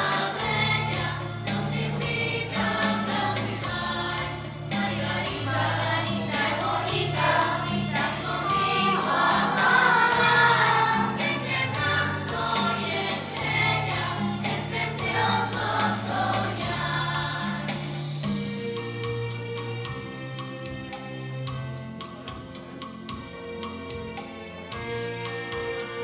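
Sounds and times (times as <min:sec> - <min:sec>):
children's choir singing: 0:00.0 - 0:18.4
instrumental accompaniment: 0:00.0 - 0:26.0.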